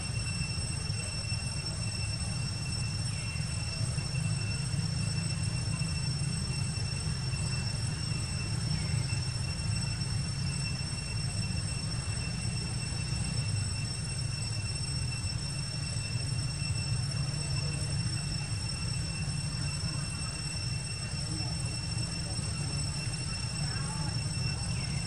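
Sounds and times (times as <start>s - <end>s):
high-pitched whine: 0.0s - 25.0s.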